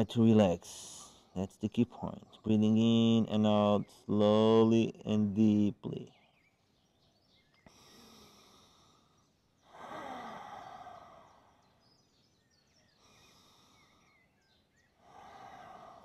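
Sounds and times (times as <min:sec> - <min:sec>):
person breathing deeply: 0:07.7 - 0:11.8, 0:12.9 - 0:14.3, 0:15.0 - 0:16.0.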